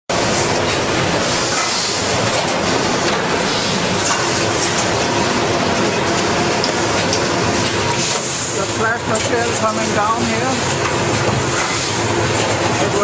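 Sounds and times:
machines hissing: 0.2 - 5.6.

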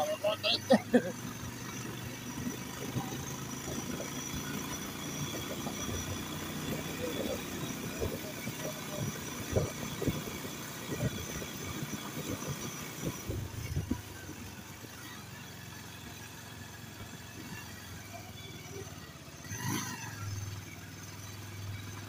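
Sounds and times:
motorcycle engine running low: 0.0 - 22.0.

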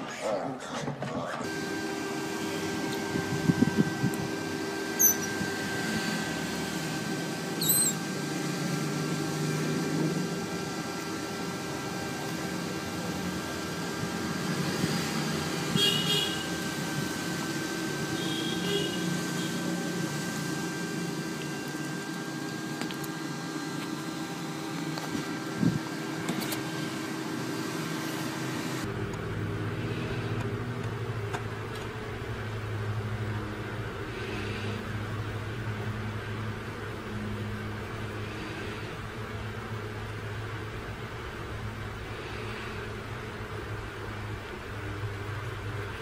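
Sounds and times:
steady mechanical hum: 0.0 - 46.0
otter pup squeaking chirps: 7.6 - 8.0.

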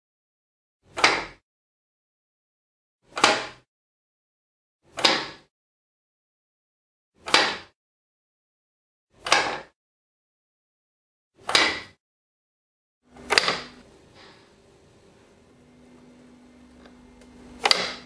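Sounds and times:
low hum: 13.1 - 17.7.

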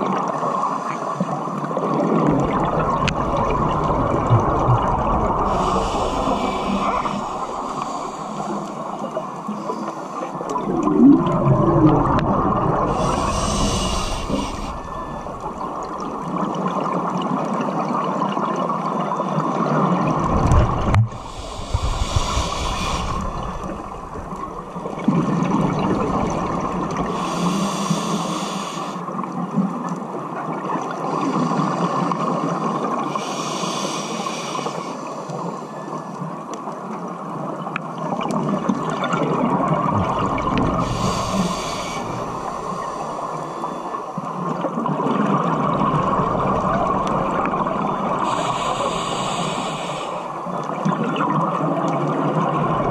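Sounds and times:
exhaled bubbles rushing: 1.8 - 9.6, 10.4 - 18.6, 19.5 - 27.2, 38.0 - 48.6, 50.4 - 52.9
regulator inhale hiss: 5.4 - 10.4, 12.9 - 16.1, 21.1 - 24.9, 27.0 - 29.2, 33.1 - 35.3, 40.6 - 44.0, 48.2 - 50.5.

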